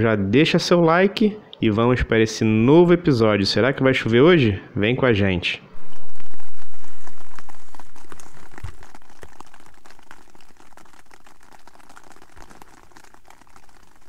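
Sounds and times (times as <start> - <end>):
rain pattering on tent fabric: 5.8 - 14.0.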